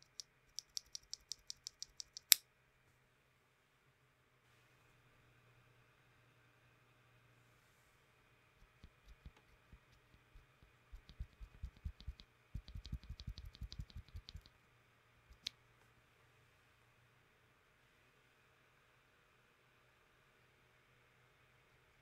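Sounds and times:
keyboard switch clacking: 11.0 - 14.5.

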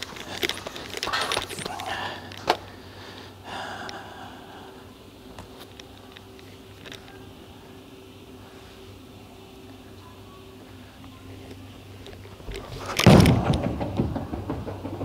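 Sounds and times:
machine hum: 0.0 - 15.0
bowling pins clattering: 12.7 - 15.0.

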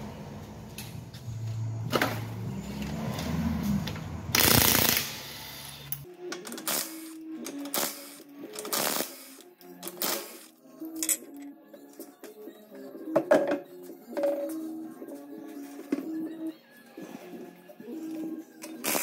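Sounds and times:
background music: 0.0 - 19.0
impact wrench bursts: 4.3 - 6.0, 6.7 - 10.5.

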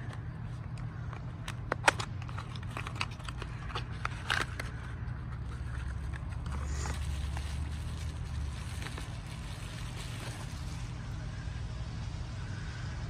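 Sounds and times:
bubble wrap crinkling: 1.5 - 11.2
cardboard box opening: 1.8 - 7.7.

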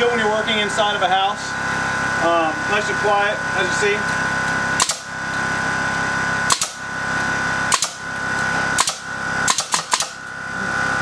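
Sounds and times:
generator humming: 0.0 - 11.0
nail gun firing into wood: 4.8 - 5.1, 6.5 - 6.8, 7.7 - 8.1, 8.8 - 10.2.

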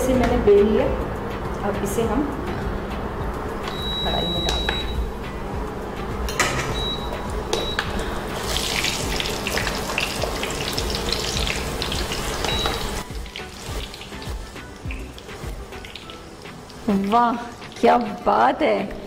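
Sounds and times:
dough sizzling in hot oil: 8.0 - 18.5.

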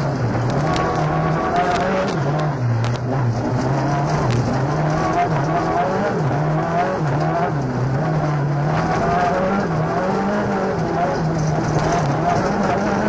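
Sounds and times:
rally car engine revving: 0.0 - 13.0
road noise: 0.0 - 13.0.

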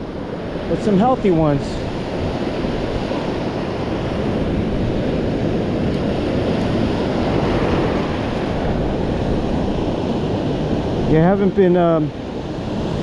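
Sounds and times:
ocean surf breaking: 0.0 - 13.0
wind buffeting microphone: 0.0 - 13.0.

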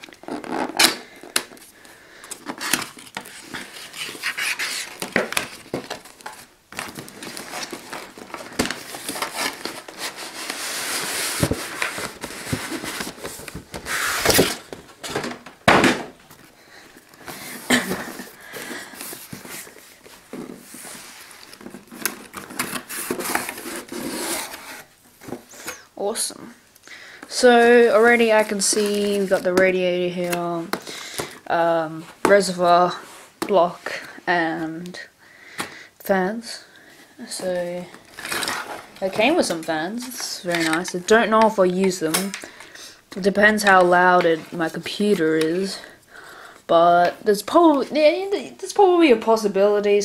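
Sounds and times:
cardboard sleeve scraping: 0.0 - 1.4, 2.5 - 15.0, 17.2 - 25.8
cardboard rustling: 0.0 - 25.8, 27.4 - 34.0, 37.2 - 42.5.

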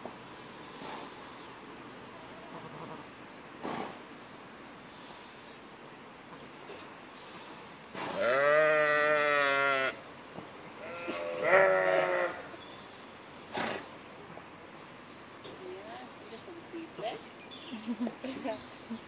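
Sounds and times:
sheep bleating: 8.2 - 10.0, 10.8 - 12.4.

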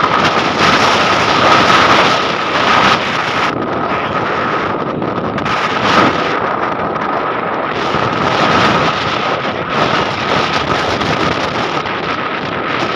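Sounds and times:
wind buffeting microphone: 0.0 - 12.9
thin high tone: 3.8 - 4.5.

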